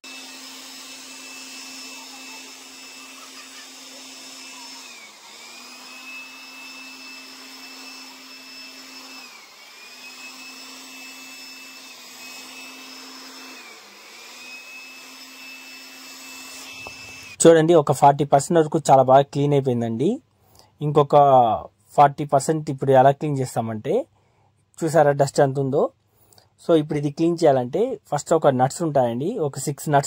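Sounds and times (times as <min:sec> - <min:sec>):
electric air blower whining: 0:00.0 - 0:17.4.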